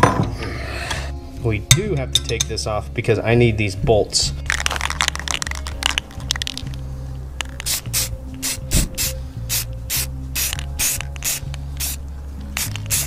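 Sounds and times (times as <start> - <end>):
spray can short bursts: 7.6 - 12.0, 12.6 - 13.0.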